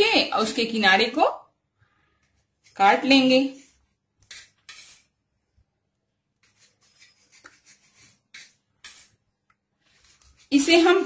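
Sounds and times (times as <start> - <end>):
knife scraping bread crust: 3.5 - 5.2, 6.4 - 10.8.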